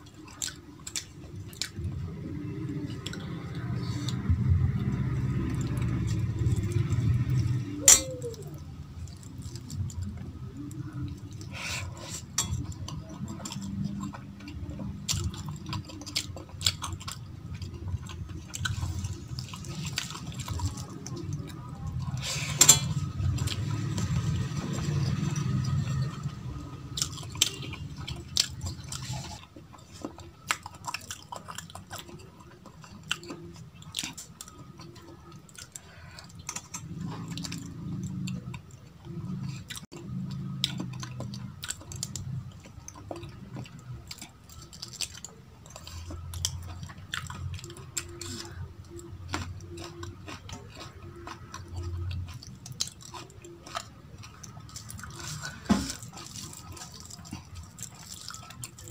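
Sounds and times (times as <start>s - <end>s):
chewing and wet mouth sounds: 0.0s - 58.9s.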